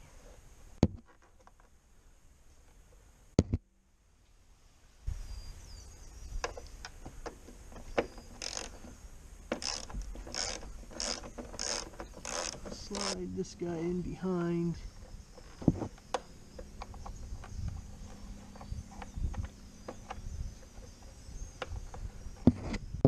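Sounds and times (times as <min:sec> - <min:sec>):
wire rustling and scraping on trim: 0:06.5 - 0:13.2.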